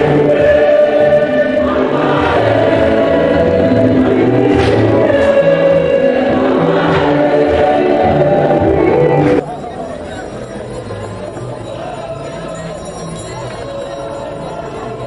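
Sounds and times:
choir singing a hymn: 0.0 - 9.4.

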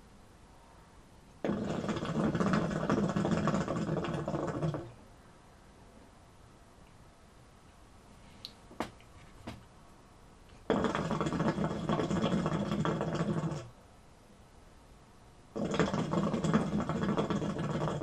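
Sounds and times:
hookah water bubbling: 1.4 - 5.0, 10.6 - 13.7, 15.5 - 18.0.

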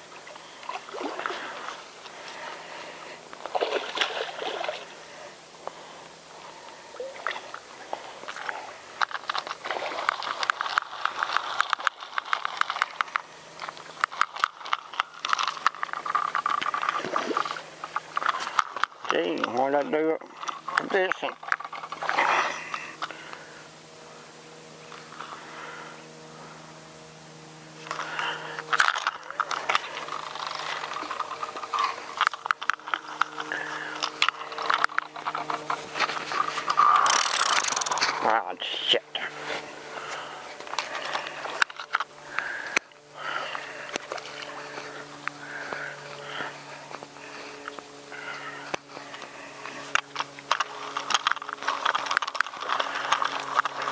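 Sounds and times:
fishing reel clicking: 9.0 - 19.6, 28.7 - 38.1, 49.9 - 53.9.

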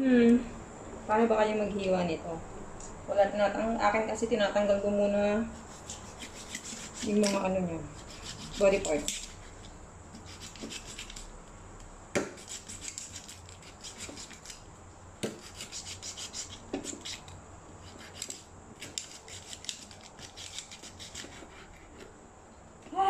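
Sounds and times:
knife sawing through raw duck: 5.6 - 7.4, 8.0 - 9.6, 10.2 - 11.2, 12.4 - 14.6, 15.4 - 21.9.

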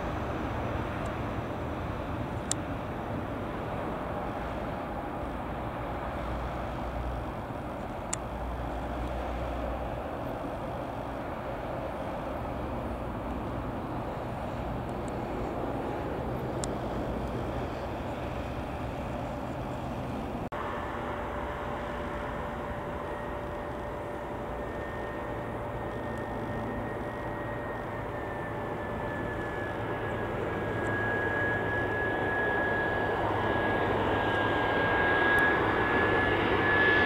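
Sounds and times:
jet engines whining: 0.0 - 37.0
propeller airliner engine drone: 0.0 - 37.0.

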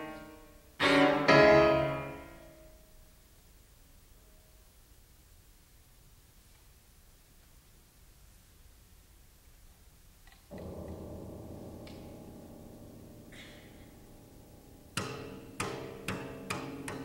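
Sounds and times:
violin cello and piano trio: 10.5 - 17.0.

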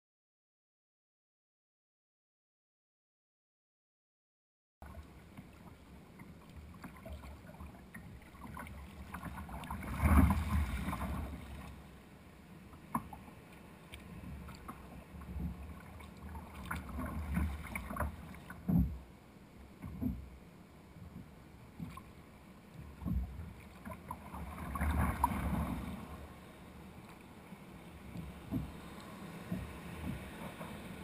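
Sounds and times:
water sloshing against kayak hull: 4.8 - 12.0, 12.6 - 31.0.

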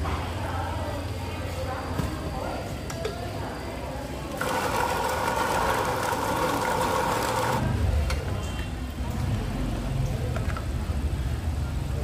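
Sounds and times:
meat grinder motor humming: 4.4 - 7.7.

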